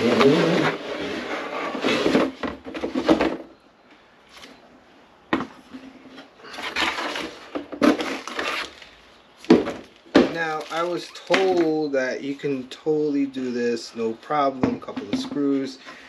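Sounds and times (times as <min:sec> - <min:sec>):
cardboard packaging rubbing: 0:06.5 - 0:09.0.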